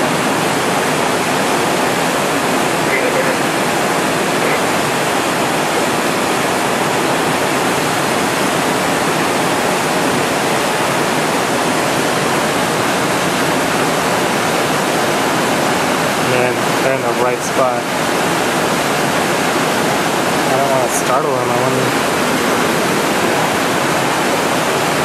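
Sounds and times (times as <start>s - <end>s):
water rushing over rocks: 0.0s - 25.0s.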